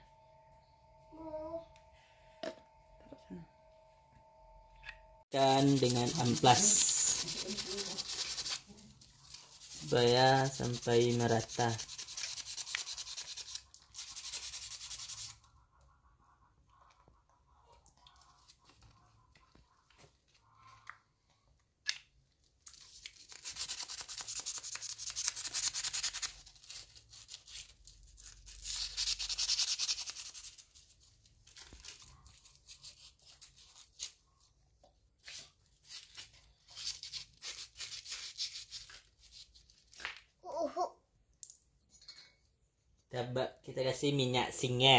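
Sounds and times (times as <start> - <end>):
sandpaper scrubbing metal: 5.4 - 15.4, 23.3 - 31.0, 35.3 - 39.5.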